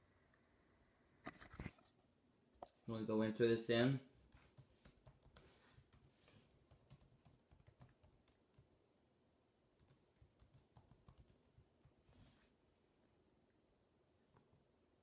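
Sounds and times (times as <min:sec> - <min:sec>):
faint keyboard typing: 0:04.2 - 0:08.9, 0:09.8 - 0:12.3.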